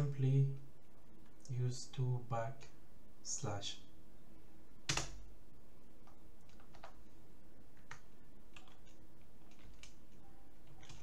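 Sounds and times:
faint background hiss: 0.0s - 11.0s
keyboard keystrokes: 7.8s - 11.0s.

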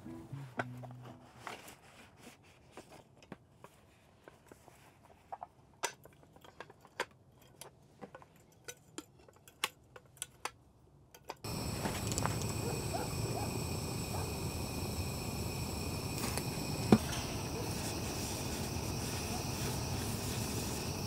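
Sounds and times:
loud steady noise: 11.5s - 21.0s.

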